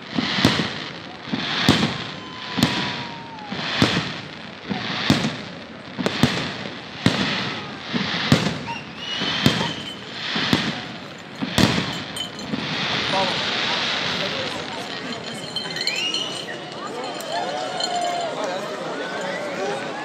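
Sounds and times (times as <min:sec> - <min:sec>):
hissing crackle: 0:00.0 - 0:16.9
firework shells bursting: 0:00.0 - 0:17.9
faint firework whistles: 0:00.0 - 0:18.2.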